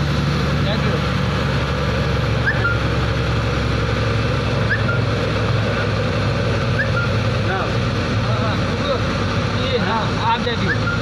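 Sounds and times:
truck engine running under load: 0.0 - 11.0.

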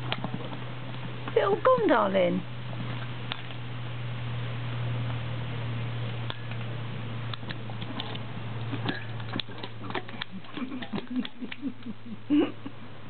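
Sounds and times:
steady low hum: 0.0 - 13.0
dog licking a metal bowl: 7.4 - 11.6.

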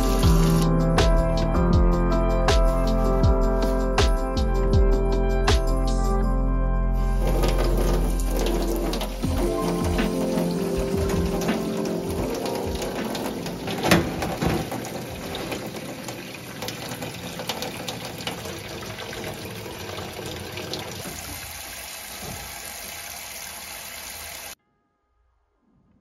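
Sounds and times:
tap water pouring into sink: 7.2 - 24.6.

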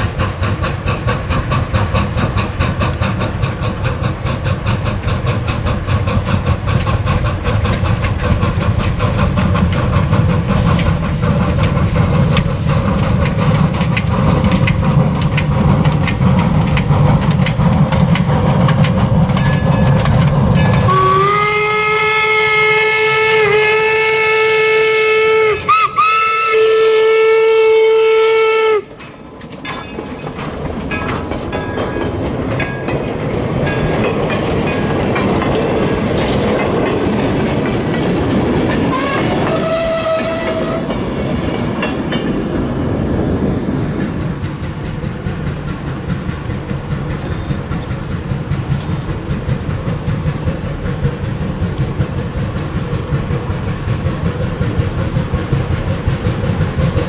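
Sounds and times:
steam locomotive rumbling: 0.0 - 57.0
train wheels clicking over rail joints: 0.0 - 57.0
steam whistle blast: 20.9 - 28.9, 38.9 - 40.9.

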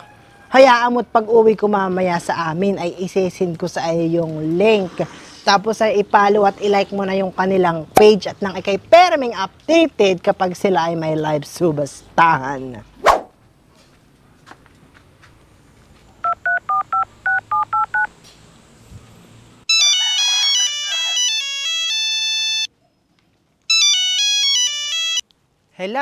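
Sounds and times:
phone keypad tones: 16.2 - 18.1, 19.7 - 22.7, 23.7 - 25.2
mobile phone melodic ringtone: 16.3 - 18.1, 19.7 - 22.7, 23.7 - 25.2.

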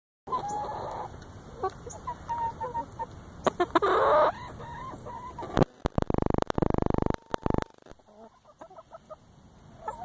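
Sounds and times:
hens clucking: 0.3 - 10.0.

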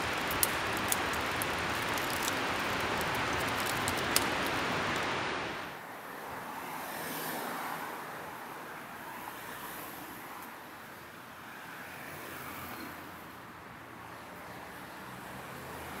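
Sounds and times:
distant city traffic: 0.0 - 9.2.

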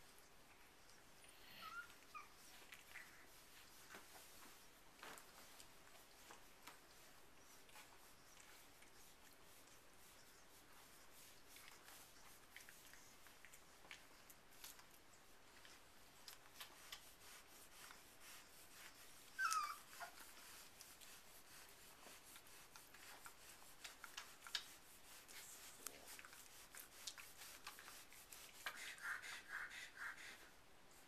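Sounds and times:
puppies rustling on pads: 0.0 - 29.3
puppy whimper: 1.3 - 3.3, 19.2 - 20.3.

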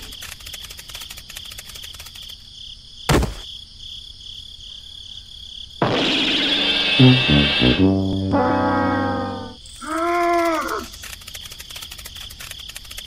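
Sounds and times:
crickets chirping: 0.0 - 13.0
short thud: 3.1 - 3.5
brass music: 5.8 - 9.6.

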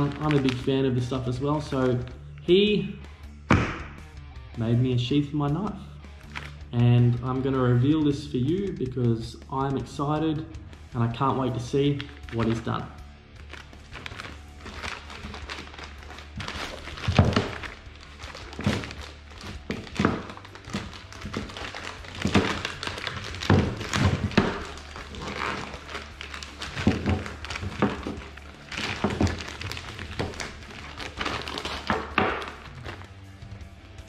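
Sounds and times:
plastic satchel crinkling: 0.0 - 2.1, 6.3 - 6.6, 11.9 - 12.8, 13.4 - 33.3.

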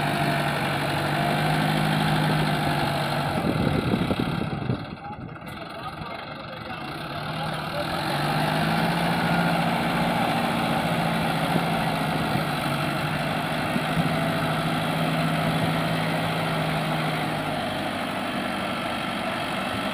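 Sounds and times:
low engine hum: 0.0 - 19.9
tractor diesel engine running: 0.0 - 19.9.

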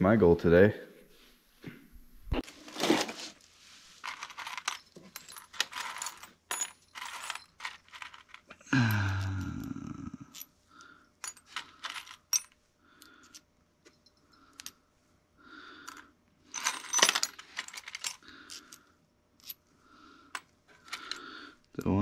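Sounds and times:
steel washers clinking: 4.0 - 9.3, 11.2 - 14.8, 15.8 - 18.8.

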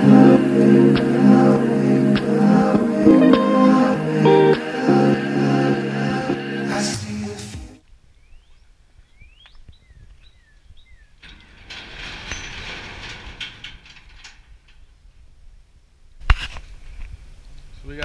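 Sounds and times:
small bird chirping: 8.1 - 11.2.

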